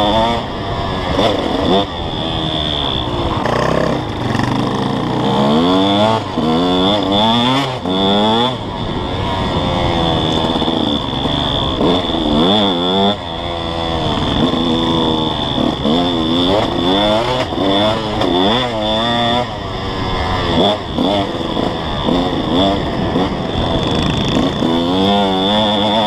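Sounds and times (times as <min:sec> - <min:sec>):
dirt bike engine revving: 0:00.0 - 0:26.0.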